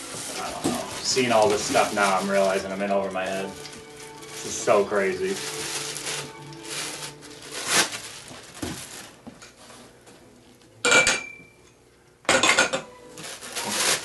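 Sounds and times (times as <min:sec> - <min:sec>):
packing material rustling: 0:00.0 - 0:10.0, 0:13.1 - 0:14.0
plastic wrap rustling: 0:00.0 - 0:10.7, 0:13.1 - 0:14.0.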